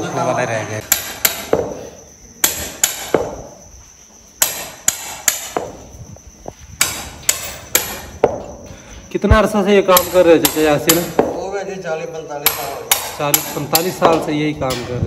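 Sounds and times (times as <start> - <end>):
hammer knocking blade into hoof: 0.8 - 1.8, 2.4 - 3.5, 4.4 - 5.8, 6.8 - 8.5, 12.4 - 14.9.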